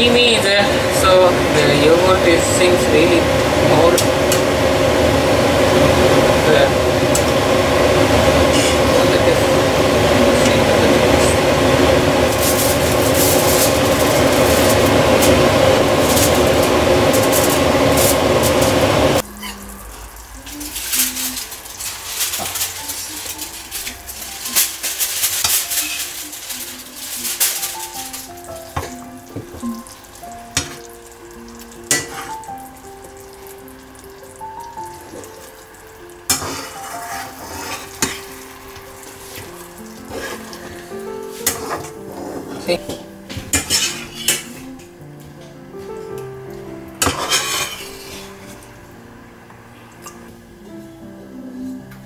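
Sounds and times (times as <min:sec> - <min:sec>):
curry sizzling in frying pan: 0:00.0 - 0:44.8, 0:46.8 - 0:48.9
soft music: 0:00.0 - 0:52.0
spatula stirring and scraping pan: 0:09.9 - 0:19.2, 0:20.5 - 0:29.8, 0:31.9 - 0:32.5, 0:36.3 - 0:42.9, 0:43.5 - 0:44.6, 0:47.0 - 0:48.6.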